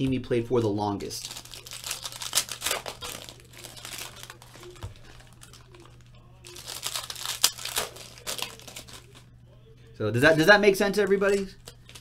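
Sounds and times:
foil wrapper crinkling: 0.9 - 9.3, 11.5 - 12.0.

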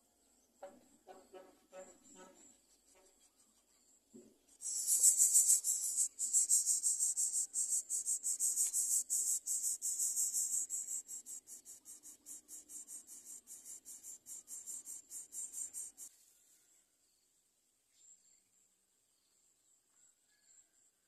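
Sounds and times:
nestlings rasping begging calls: 4.6 - 16.1.

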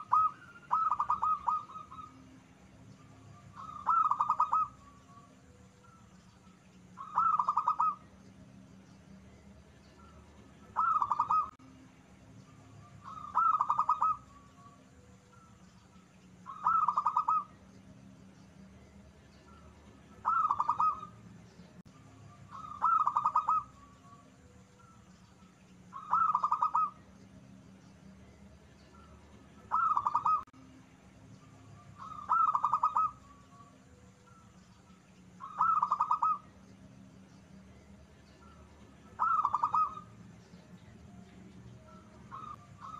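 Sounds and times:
dove cooing: 0.0 - 2.4, 3.3 - 6.0, 7.0 - 8.2, 10.0 - 11.6, 13.0 - 15.1, 16.4 - 17.7, 19.5 - 21.2, 22.5 - 24.5, 25.9 - 27.1, 29.0 - 30.5, 31.9 - 33.7, 35.4 - 36.6, 38.4 - 40.2, 41.9 - 42.9.

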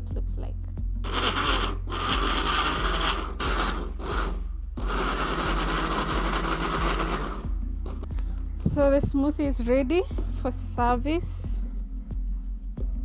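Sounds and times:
blender running: 1.0 - 7.5.

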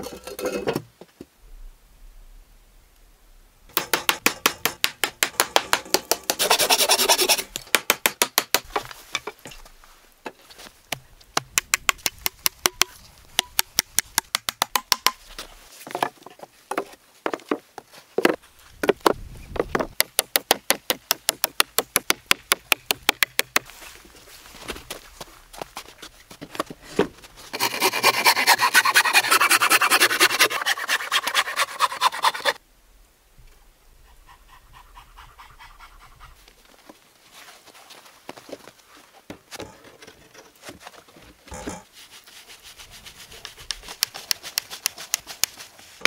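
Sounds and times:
hand saw cutting wood: 5.4 - 7.6, 27.5 - 32.6.

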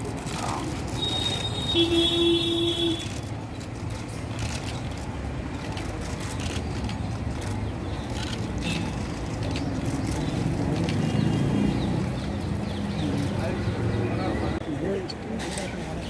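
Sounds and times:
road traffic rumble: 0.0 - 16.0
vehicle horn: 1.1 - 3.2.

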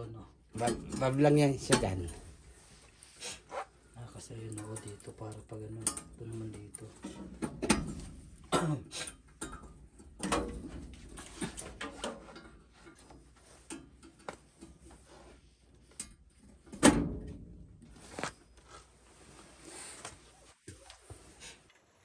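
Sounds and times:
tools knocking and clattering: 0.6 - 2.2, 5.8 - 15.0.

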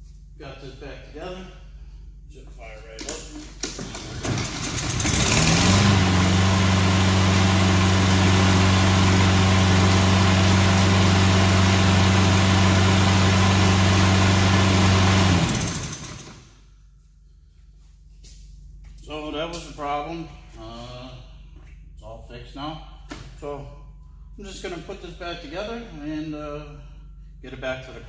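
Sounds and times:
lawn mower engine running: 3.9 - 16.5.

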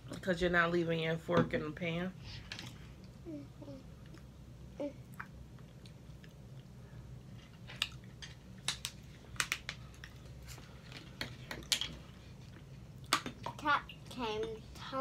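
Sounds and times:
steady low hum: 0.0 - 15.0
chewing: 5.1 - 8.2.

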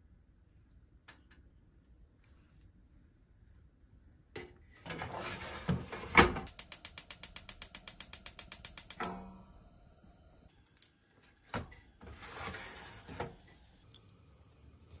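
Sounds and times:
igniter clicking rapidly: 6.5 - 9.2.

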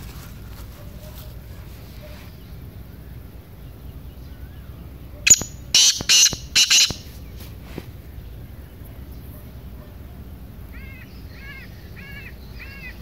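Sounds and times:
bird calling harsh notes: 5.2 - 7.3.

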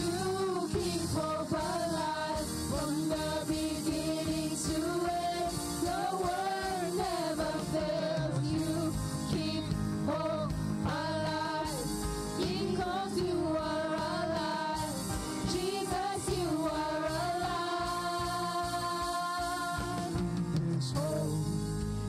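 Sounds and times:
woman singing: 0.0 - 21.4
man singing: 20.5 - 21.8.

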